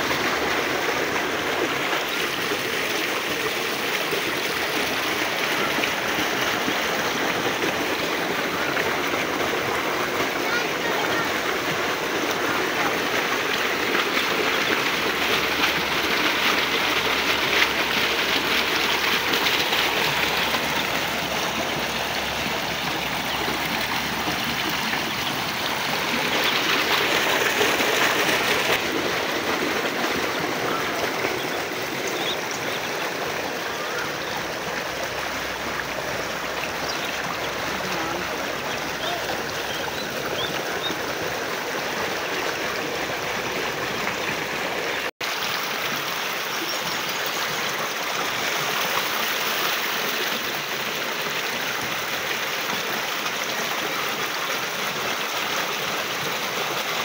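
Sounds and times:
water rushing along channel: 0.0 - 57.0.

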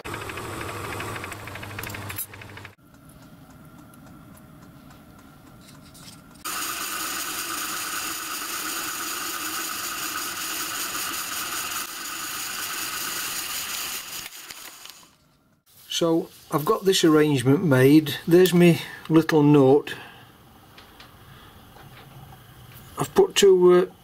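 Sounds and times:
drill spindle whirring: 6.4 - 14.4.

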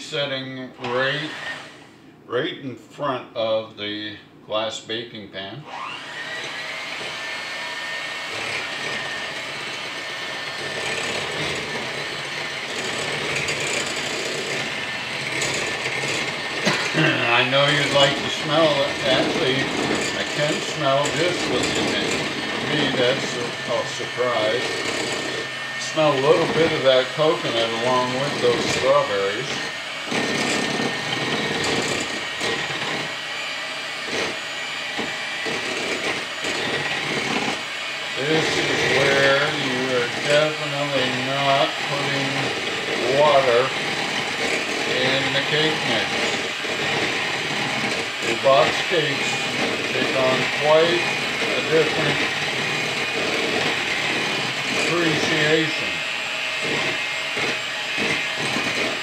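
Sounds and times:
electric hand mixer whirring: 0.8 - 2.0, 5.6 - 59.0.

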